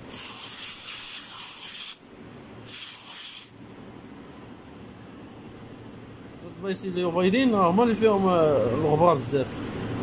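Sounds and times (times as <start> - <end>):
aerosol can spraying hiss: 0.1 - 2.0, 2.7 - 3.5.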